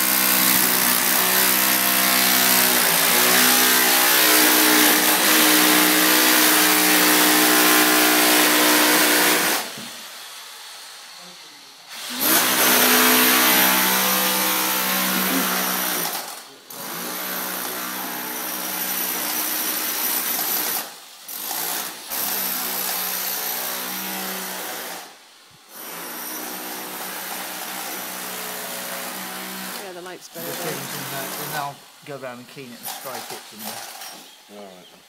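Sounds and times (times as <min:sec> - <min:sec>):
small motor running: 0:12.0 - 0:17.7, 0:29.6 - 0:31.7.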